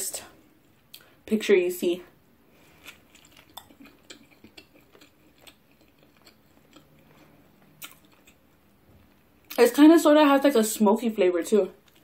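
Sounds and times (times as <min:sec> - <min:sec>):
person chewing food: 0:02.4 - 0:09.6, 0:11.8 - 0:12.0.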